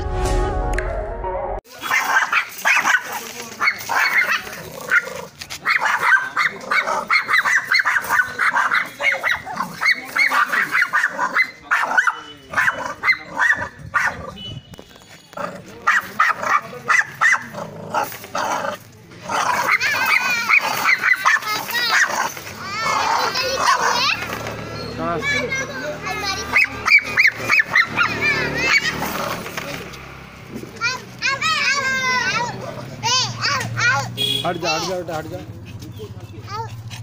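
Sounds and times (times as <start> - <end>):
small dogs barking: 1.8 - 14.4, 15.4 - 24.4, 26.2 - 29.6.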